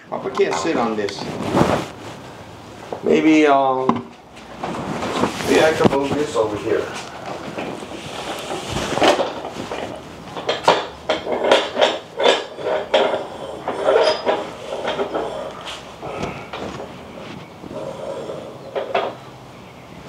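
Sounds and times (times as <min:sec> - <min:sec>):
hard objects clattering and knocking: 0:03.8 - 0:19.2.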